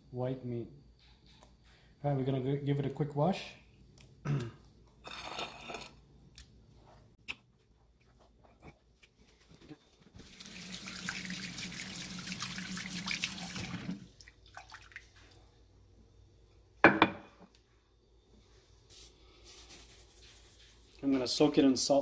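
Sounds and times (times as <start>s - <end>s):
kitchen faucet running: 10.2s - 14.1s
faint water sloshing: 10.2s - 15.7s.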